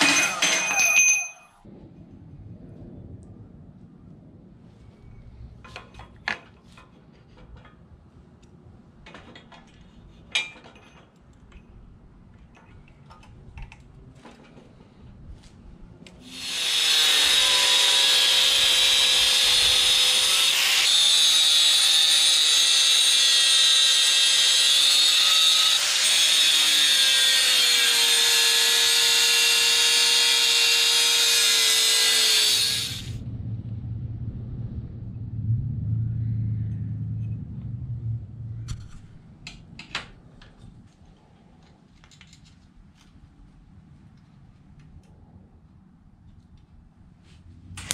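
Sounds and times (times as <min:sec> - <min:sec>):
angle grinder grinding steel: 0:00.0 - 0:01.4, 0:16.3 - 0:33.2.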